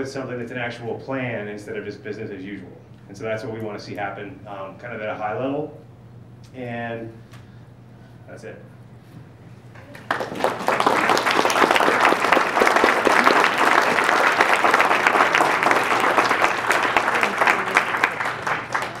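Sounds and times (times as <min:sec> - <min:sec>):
audience applauding: 0:09.8 - 0:19.0.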